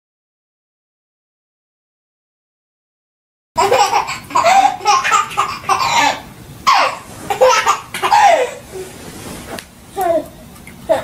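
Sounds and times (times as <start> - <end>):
baby laughing: 3.6 - 8.9.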